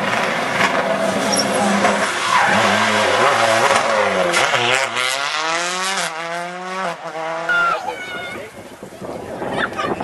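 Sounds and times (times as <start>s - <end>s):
rally car engine revving: 0.0s - 7.8s.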